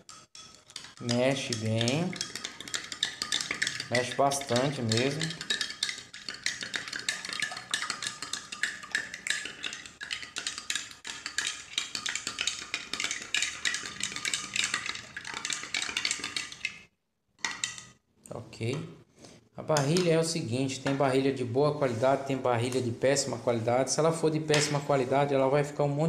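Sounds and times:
spoon clinking in a glass: 0.0 - 11.6.

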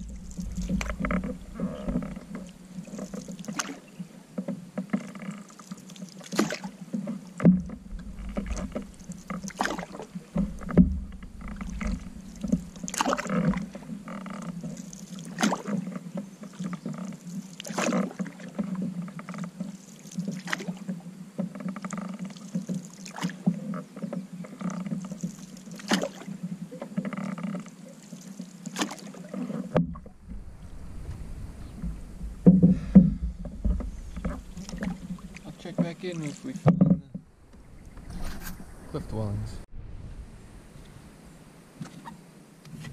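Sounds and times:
steady low hum: 0.0 - 4.3, 7.4 - 15.1, 29.8 - 41.8
canoe paddles dipping in water: 0.0 - 42.9
water moving along hull: 0.0 - 42.9.

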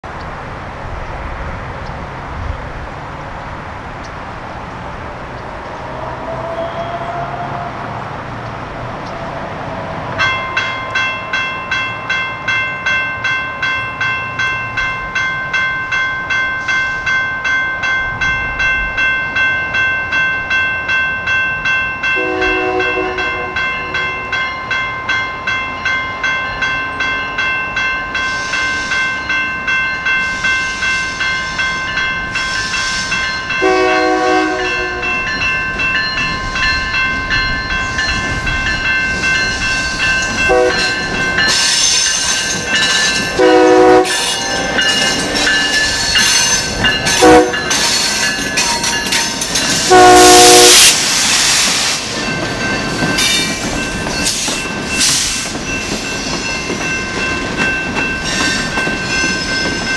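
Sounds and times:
electronic crossing bell ringing: 10.2 - 50.9
locomotive horn blasts: 22.2 - 24.2, 33.6 - 35.4, 40.5 - 41.0, 43.4 - 45.3, 47.1 - 47.8, 49.8 - 51.0.

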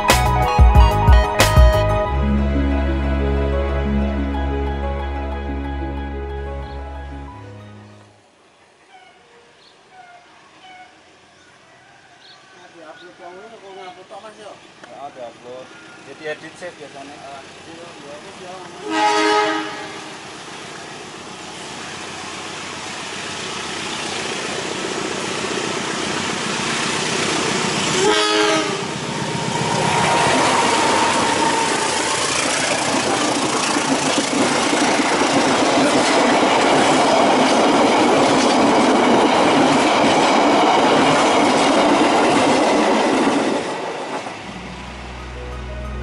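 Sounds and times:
diesel locomotive passing: 1.8 - 8.4, 12.6 - 46.0
coaches rumbling and rail clatter: 14.0 - 46.0
train horn blast: 18.8 - 20.2, 28.0 - 29.0, 29.6 - 32.6.

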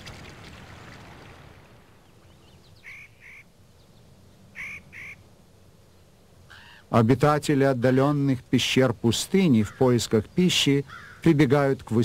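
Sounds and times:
soft water noise: 0.0 - 7.0
nasal quack-like bird calls: 2.8 - 3.5, 4.5 - 5.2, 10.9 - 11.2.

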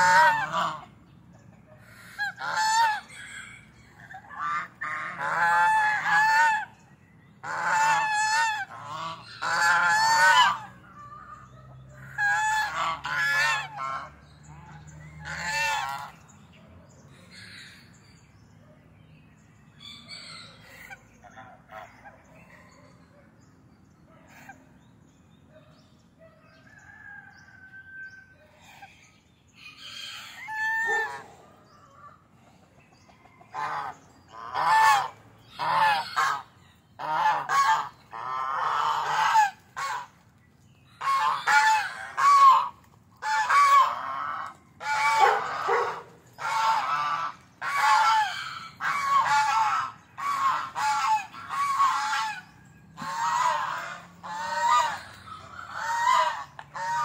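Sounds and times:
geese honking: 0.0 - 1.0, 1.8 - 6.8, 7.4 - 16.3, 29.8 - 31.3, 33.5 - 40.2, 41.0 - 57.0.

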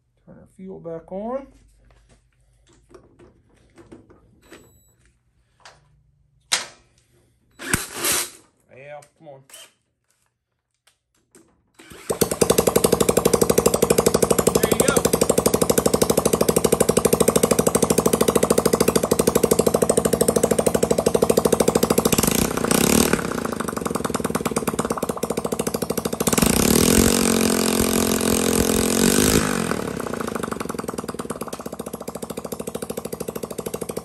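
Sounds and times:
single-cylinder engine revving: 11.8 - 34.0.

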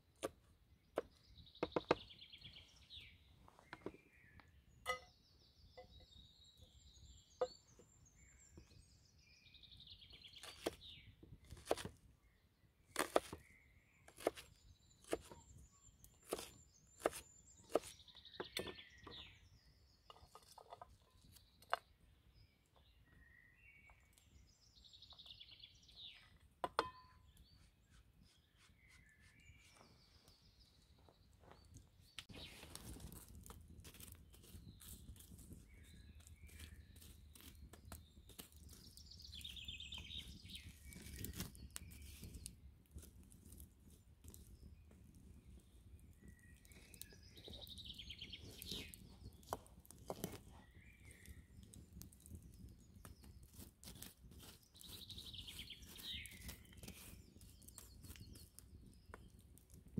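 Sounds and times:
songbirds singing: 0.0 - 59.9
knife chopping on wooden board: 11.6 - 11.9, 13.0 - 13.4, 14.2 - 14.4, 16.2 - 18.7.

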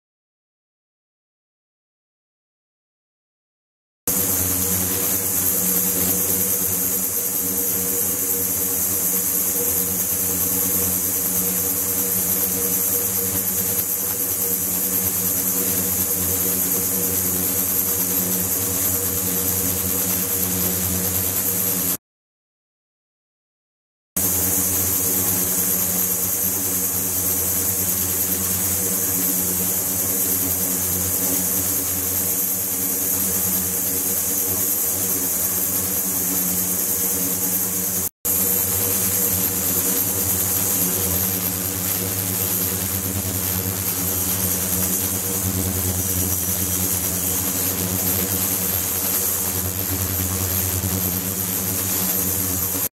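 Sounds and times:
high-pitched whine: 4.1 - 21.6, 29.8 - 52.9.

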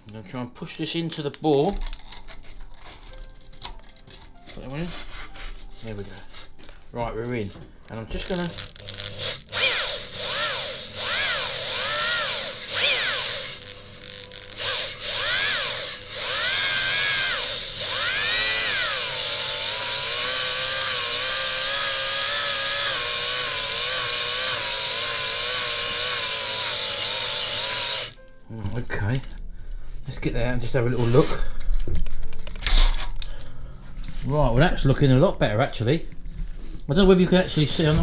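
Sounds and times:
stones rasping on metal: 4.2 - 6.6
electric drill motor: 8.3 - 28.2.

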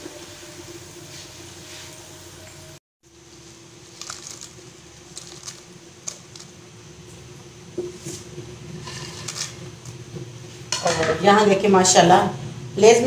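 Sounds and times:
potato chips clicking in bowl: 4.0 - 6.5.

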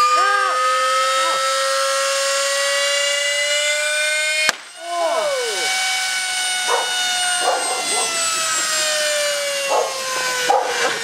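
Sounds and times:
vacuum cleaner motor whine: 0.0 - 11.0
excited shouts: 4.8 - 5.8.

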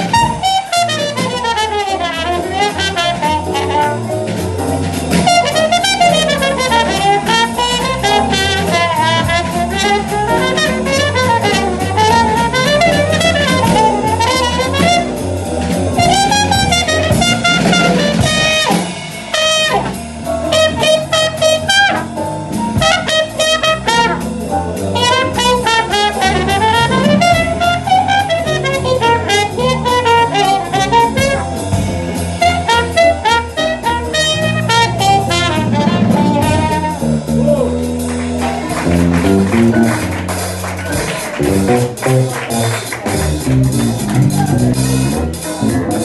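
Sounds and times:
muted trumpet solo: 0.0 - 4.1, 5.3 - 15.2, 16.0 - 22.2, 22.8 - 24.3, 25.0 - 31.4, 32.4 - 37.3
bass: 0.0 - 46.0
drums: 0.0 - 46.0
piano: 0.0 - 46.0.

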